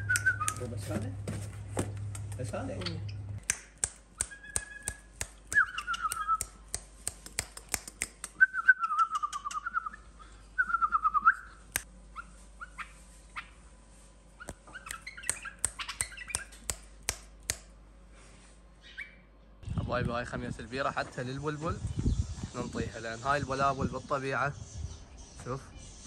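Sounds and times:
bird singing warbled phrases: 0.0s - 0.8s, 2.7s - 3.4s, 4.2s - 6.6s, 8.4s - 11.6s, 14.4s - 16.7s, 18.8s - 20.0s, 20.7s - 26.0s
sharp clicks and taps: 3.4s - 8.4s, 14.5s - 17.7s.

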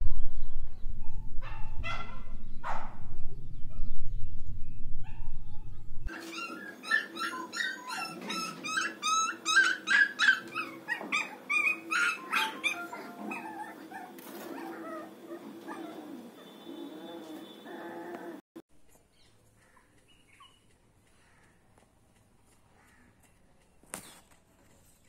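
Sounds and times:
loud low rumble: 0.0s - 6.1s
puppy whimpering and yelping: 6.0s - 16.4s.

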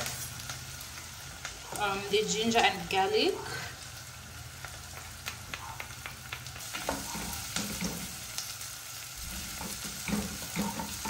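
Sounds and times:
onions sizzling in oil: 0.0s - 11.0s
wooden spatula scraping a pan: 9.2s - 11.0s.

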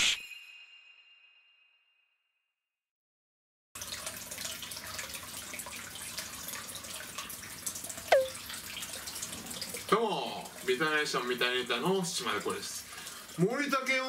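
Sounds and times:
water trickling into foot bath: 3.8s - 14.0s.

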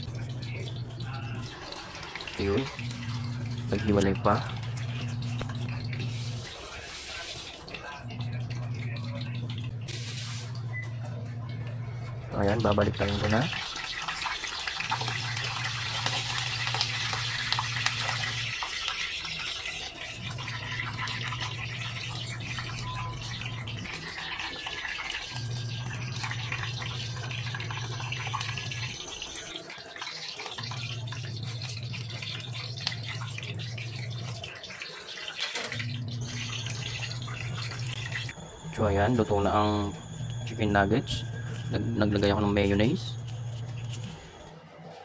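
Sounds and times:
low hum: 0.0s - 6.8s, 7.7s - 13.6s, 20.2s - 29.1s, 35.7s - 45.0s
chicken frying in hot oil: 0.0s - 44.6s.

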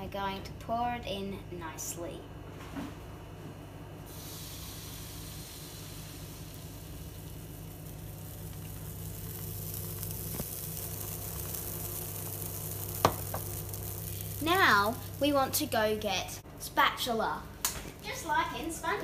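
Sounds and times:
pancake batter sizzling in frying pan: 4.1s - 15.9s.

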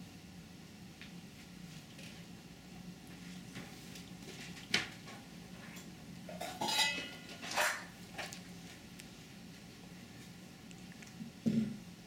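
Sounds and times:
bowl clinking on plastic tray: 6.3s - 7.8s.

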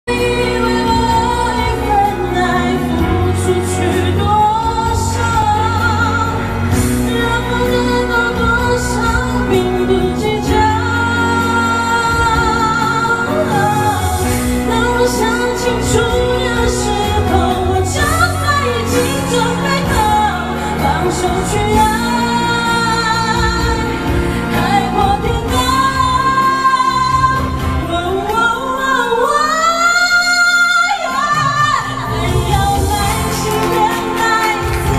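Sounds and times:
karaoke backing track: 0.0s - 34.9s
woman singing into microphone: 0.0s - 34.9s.

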